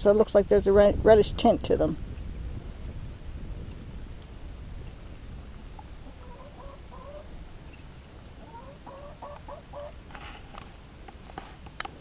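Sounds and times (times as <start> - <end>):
hen clucking: 5.8 - 7.8, 8.4 - 10.0.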